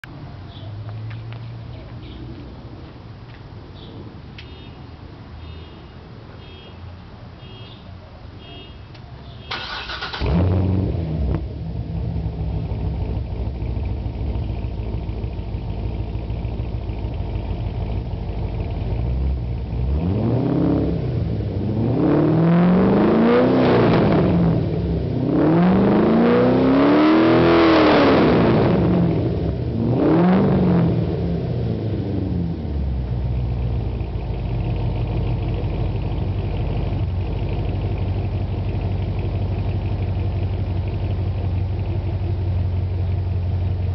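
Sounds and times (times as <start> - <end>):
car engine starting and idling: 8.9 - 43.9
car engine revving: 9.5 - 42.5.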